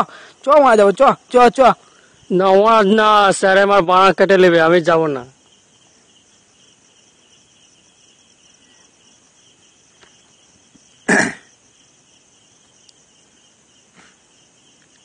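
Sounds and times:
person coughing: 11.1s - 11.5s.

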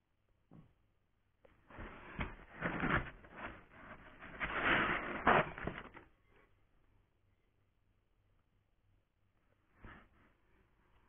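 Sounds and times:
foam and cardboard rubbing: 1.6s - 6.1s.

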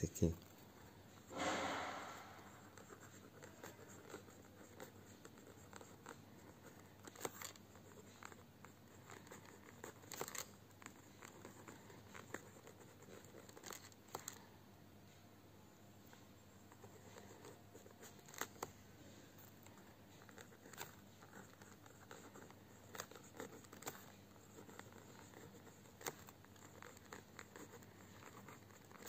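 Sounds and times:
pen scratching on paper: 1.3s - 14.0s, 16.5s - 18.7s, 19.4s - 29.0s
paper rustle: 9.0s - 14.4s, 17.0s - 18.7s, 19.4s - 29.0s.

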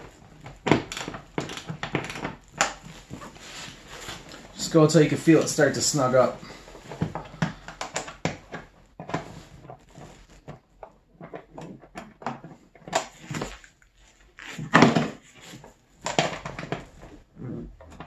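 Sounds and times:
plastic knocks and clicks: 0.0s - 3.4s, 6.8s - 13.8s, 14.5s - 18.0s.

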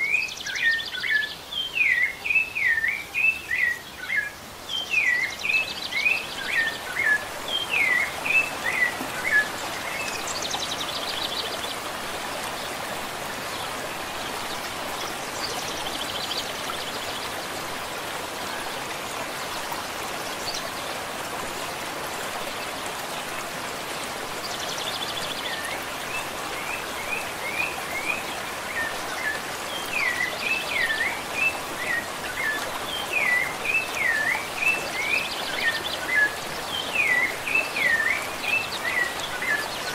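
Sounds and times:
thrush singing whistled notes: 0.0s - 11.8s, 25.0s - 39.9s.

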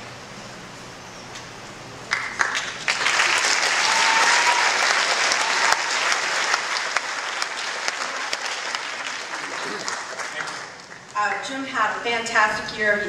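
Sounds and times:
audience applause: 2.1s - 11.1s.

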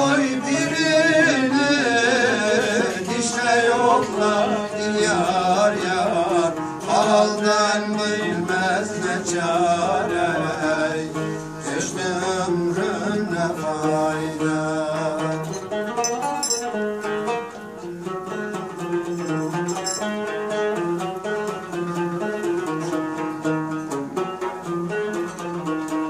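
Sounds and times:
man singing a folk song: 0.0s - 15.9s
long-necked lute playing: 0.0s - 26.0s.

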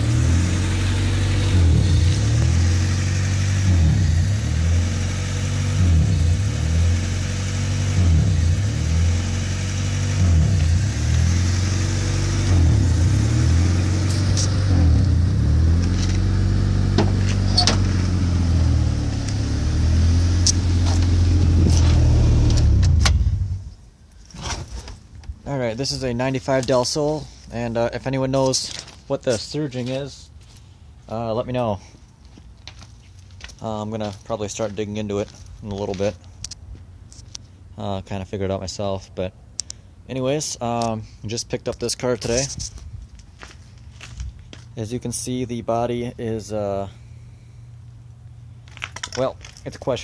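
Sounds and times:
car engine idling and surging: 0.0s - 23.8s.

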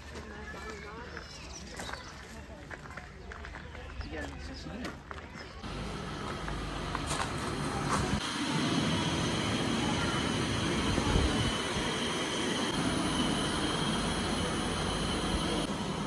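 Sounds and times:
mechanical hum with low rumble: 5.6s - 16.0s
high-pitched whine: 5.7s - 16.0s.

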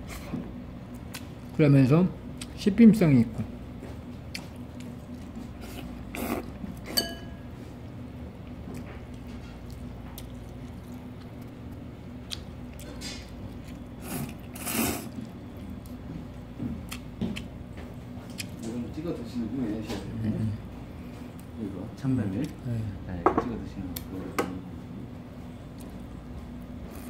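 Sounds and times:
low room hum: 0.0s - 27.0s
person slurping and chewing noodles: 4.3s - 7.0s, 12.7s - 15.7s
utensil clinking on bowl: 6.9s - 7.4s.

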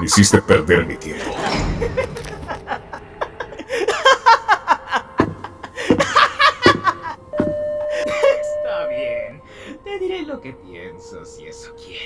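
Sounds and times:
man laughing mockingly: 1.8s - 7.3s, 7.9s - 8.5s.

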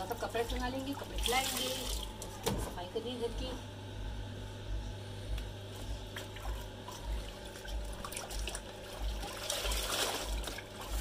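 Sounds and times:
water sloshing in a tub: 0.0s - 2.8s, 5.4s - 11.0s
low throbbing hum: 0.0s - 11.0s.

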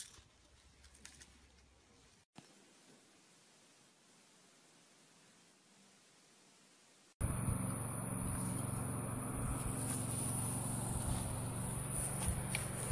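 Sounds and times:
low hum: 7.2s - 12.9s.

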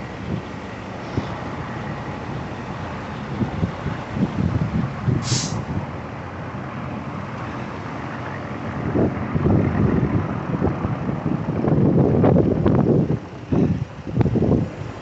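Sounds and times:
diesel truck engine idling: 0.0s - 15.0s
wind buffeting microphone: 0.0s - 15.0s
air hiss: 5.2s - 5.8s.

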